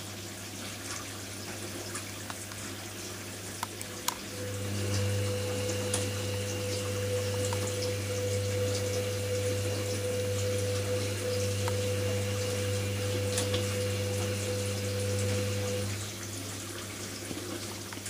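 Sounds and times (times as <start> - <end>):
water running: 0.0 - 18.0
washing machine drum motor humming: 3.8 - 18.0.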